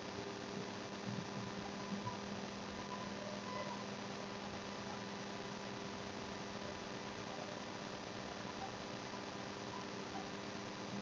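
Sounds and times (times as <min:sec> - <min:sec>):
low electrical hum: 0:00.0 - 0:11.0
steady hiss: 0:00.0 - 0:11.0.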